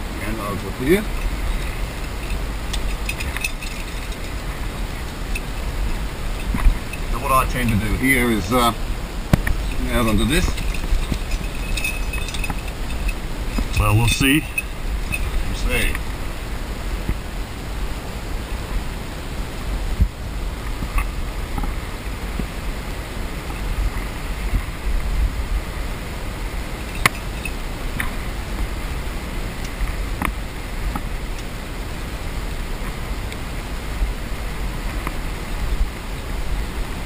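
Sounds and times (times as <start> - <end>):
outdoor rushing noise with rumble: 0.0 - 37.0.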